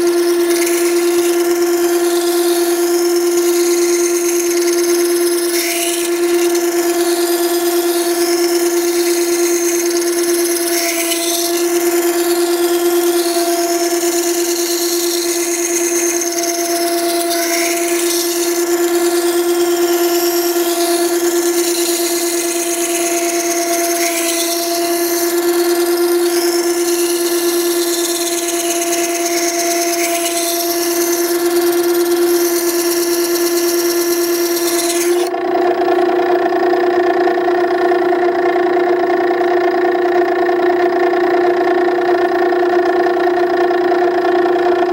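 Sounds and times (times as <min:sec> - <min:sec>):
steel grinding on stone wheel: 0:00.0 - 0:35.3
sharpener motor hum: 0:00.0 - 0:44.9.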